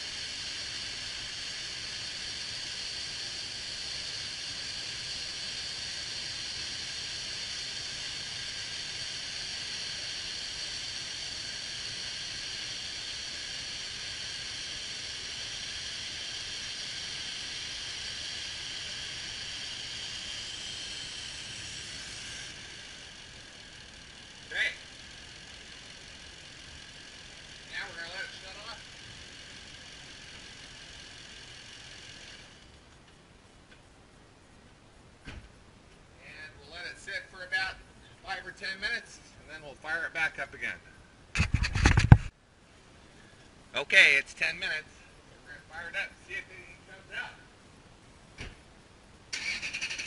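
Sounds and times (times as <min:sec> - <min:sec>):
engine idling: 0:00.0 - 0:33.1, 0:49.3 - 0:50.0.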